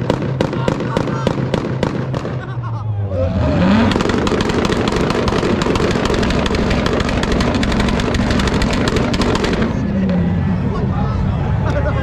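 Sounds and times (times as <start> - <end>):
car engine revving: 0.0 - 10.9
exhaust pops and bangs: 3.7 - 9.9.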